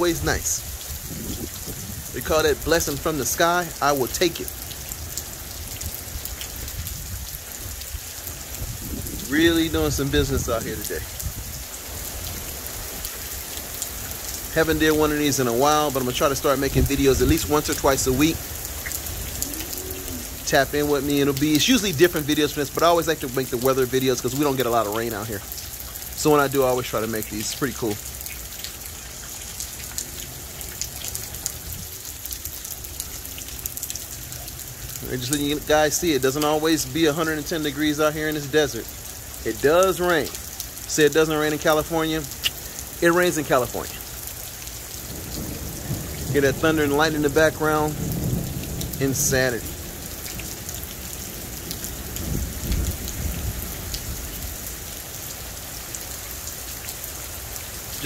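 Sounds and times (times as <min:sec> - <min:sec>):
low rumble of thunder: 0:00.0 - 0:03.1, 0:05.8 - 0:11.6, 0:45.0 - 0:54.6
heavy rain on pavement: 0:00.0 - 0:58.0
raindrop splashes: 0:00.0 - 0:58.0.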